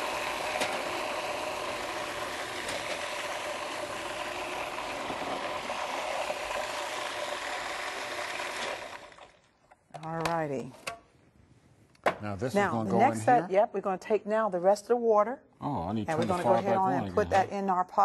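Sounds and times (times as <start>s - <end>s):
food processor running: 0.0s - 9.5s.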